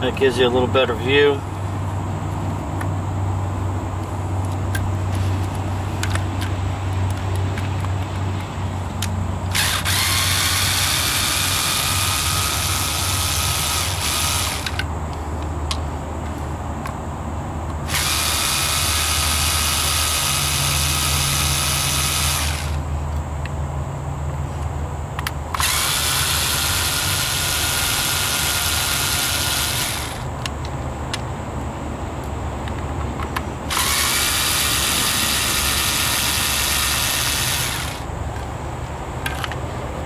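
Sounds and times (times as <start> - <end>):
steady low hum: 0.0 - 40.0
cordless screwdriver running: 9.5 - 14.8, 17.9 - 22.8, 25.6 - 30.3, 33.7 - 38.1.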